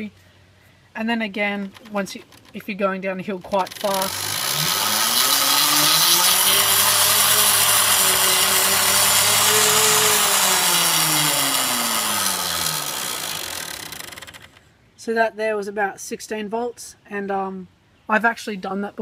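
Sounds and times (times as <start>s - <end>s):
electric motor whine: 3.5s - 14.6s.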